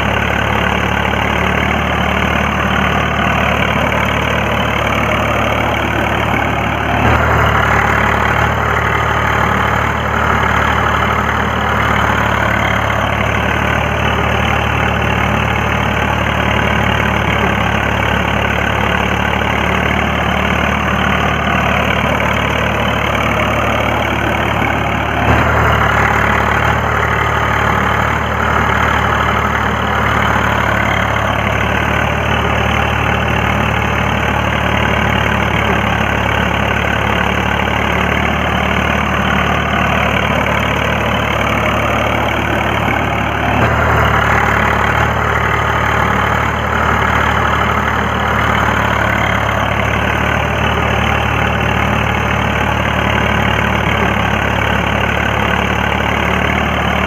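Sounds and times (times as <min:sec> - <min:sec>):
toy tractor motors humming: 0:00.0 - 0:06.9
rotavator turning through sand: 0:00.0 - 0:57.0.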